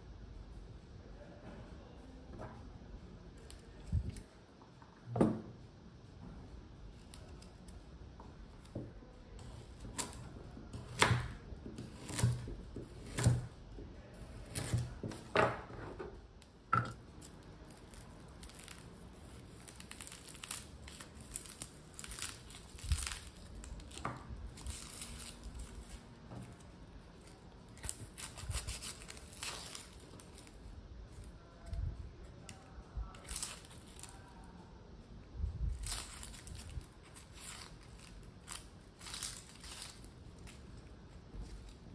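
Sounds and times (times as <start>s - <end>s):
onion skin tearing and crinkling: 8.5s - 15.4s, 16.4s - 34.5s, 35.6s - 41.9s.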